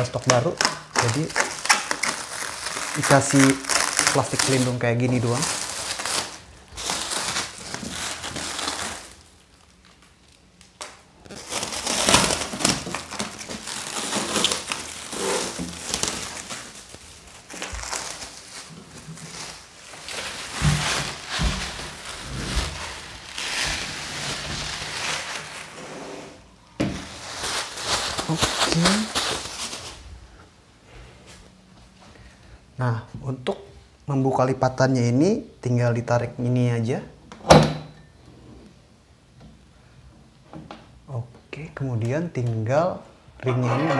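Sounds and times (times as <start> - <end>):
plastic wrap crinkling: 0.0 - 30.5.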